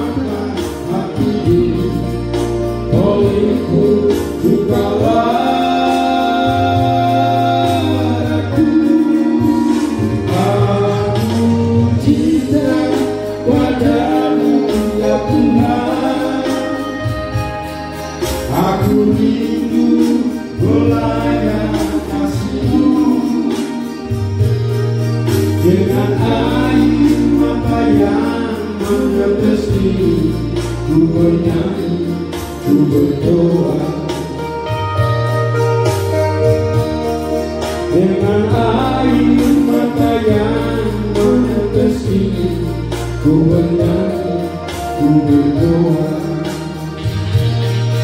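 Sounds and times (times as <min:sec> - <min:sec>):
man singing into microphone: 0:00.0 - 0:24.7, 0:25.3 - 0:35.4, 0:36.1 - 0:48.0
amplified backing music: 0:00.0 - 0:48.0.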